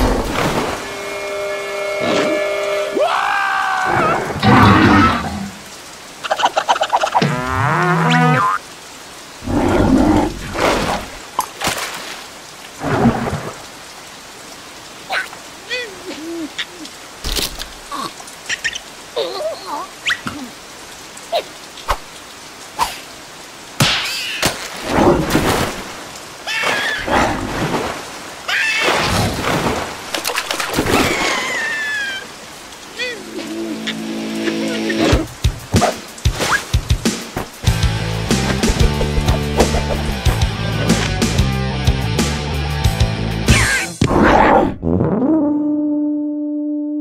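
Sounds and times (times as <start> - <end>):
water splashing and sloshing: 0.0 - 3.0, 4.0 - 42.2
steady rain: 0.0 - 44.1
high squeaky cartoon voice crying: 28.5 - 28.8, 31.0 - 32.3
cartoon voice squeal: 28.5 - 28.9.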